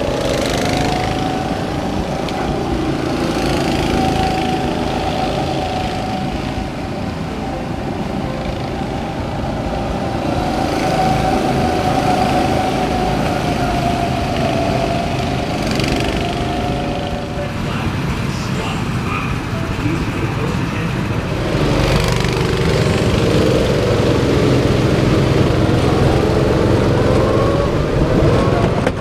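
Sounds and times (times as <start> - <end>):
go-kart engines droning: 0.0 - 29.0.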